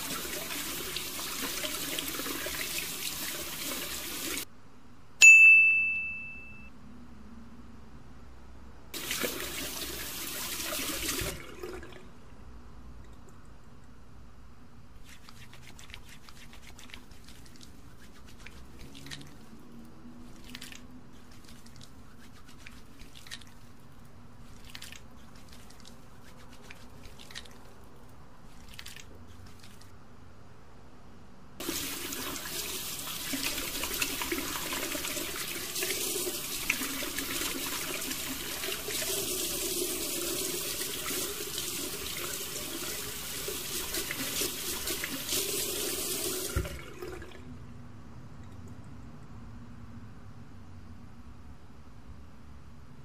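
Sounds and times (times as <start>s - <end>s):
tap water running into sink: 0.0s - 4.4s, 9.0s - 12.0s, 31.6s - 47.3s
soapy hands rubbing together: 15.0s - 29.9s, 31.6s - 46.0s.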